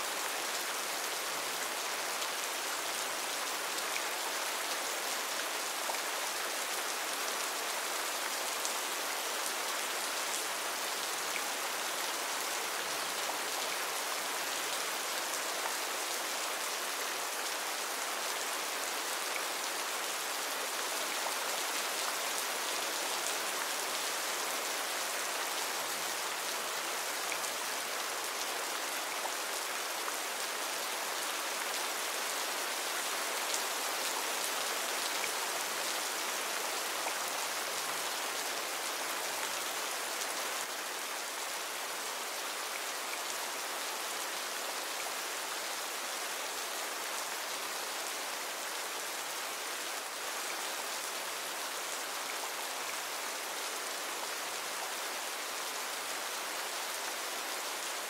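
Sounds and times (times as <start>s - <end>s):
steady rain hiss: 0.0s - 58.0s.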